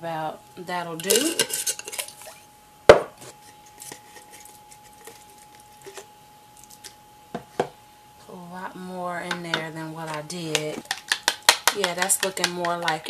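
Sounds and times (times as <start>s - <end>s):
jars and lids clicking: 9.3s - 13.0s.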